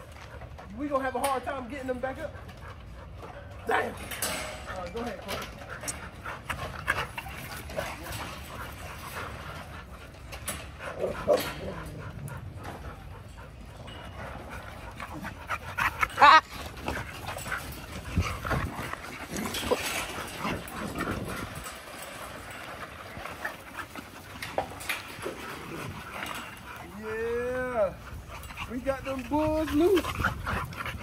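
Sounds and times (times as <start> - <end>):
dogs whining and panting: 0.0 - 31.0
kennel gate clicks and knocks: 3.7 - 9.1, 10.3 - 22.9.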